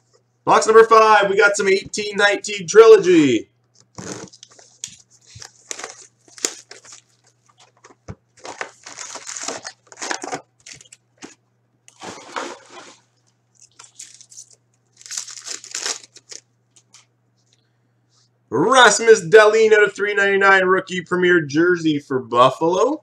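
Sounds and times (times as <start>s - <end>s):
foil packs crinkling and tearing: 3.9s - 13.0s, 13.6s - 17.0s.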